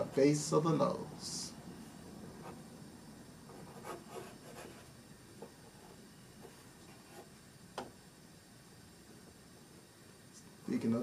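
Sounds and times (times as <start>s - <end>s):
pencil sketching on paper: 3.6s - 4.9s.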